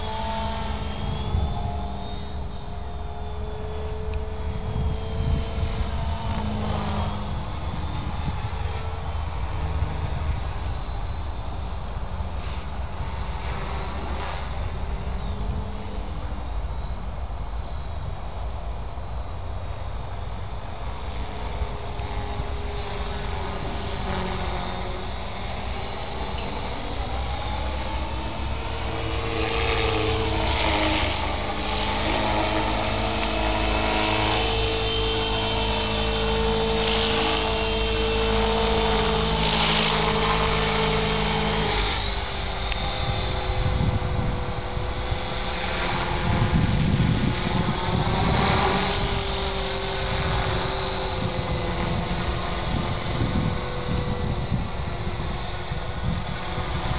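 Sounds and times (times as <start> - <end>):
rc helicopter rotor whine: 0.0 - 56.9
gusty low rumble: 40.1 - 56.9.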